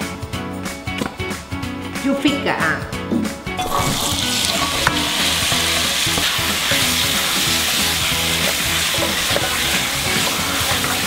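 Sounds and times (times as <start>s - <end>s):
meat sizzling in hot oil: 3.6s - 11.0s.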